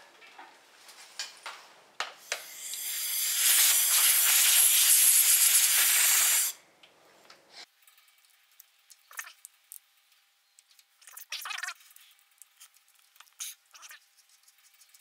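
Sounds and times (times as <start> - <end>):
compressed air blast hissing: 2.3 - 6.6.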